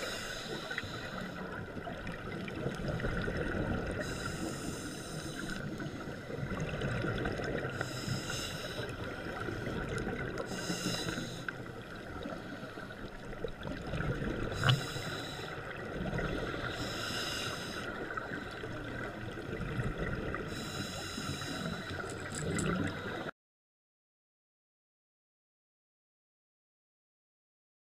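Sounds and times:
exhaled bubbles underwater: 0:00.1 - 0:23.3.

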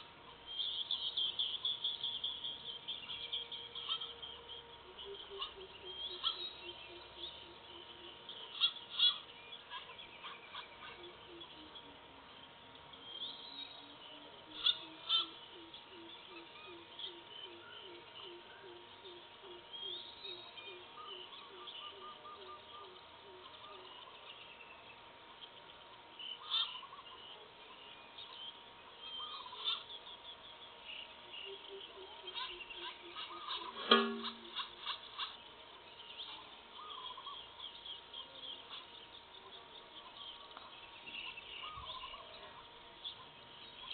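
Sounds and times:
sharp high bird calls: 0:00.0 - 0:12.0, 0:13.2 - 0:24.3, 0:26.3 - 0:27.4, 0:29.0 - 0:43.9
bird hooting: 0:00.6 - 0:12.2, 0:13.7 - 0:24.3, 0:26.4 - 0:27.5, 0:29.0 - 0:30.0, 0:31.3 - 0:35.4, 0:36.3 - 0:37.6, 0:41.2 - 0:43.9.

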